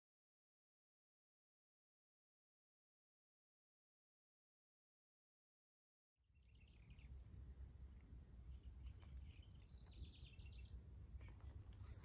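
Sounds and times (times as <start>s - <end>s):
faint bird chirps: 6.2s - 12.0s.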